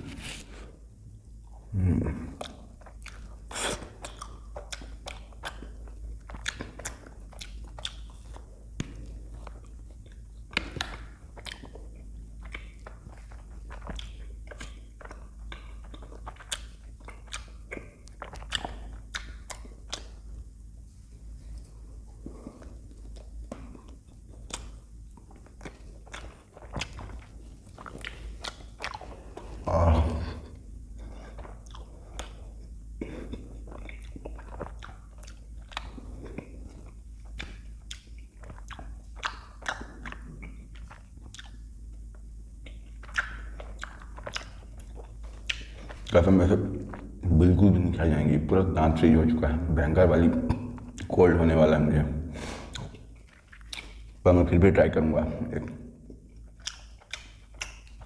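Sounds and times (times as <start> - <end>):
low hum: 0.0 - 57.6
chewing ice cream bar: 1.3 - 20.8, 21.5 - 48.0, 50.2 - 51.5, 52.5 - 54.3, 55.6 - 58.0
short vocal sound: 1.7 - 2.5, 29.6 - 30.6
wet mouth clicks: 12.4 - 20.1, 25.6 - 29.2, 37.2 - 41.6, 42.6 - 46.2, 52.4 - 54.1, 56.1 - 58.0
crunching bites: 23.0 - 30.5, 56.0 - 58.0.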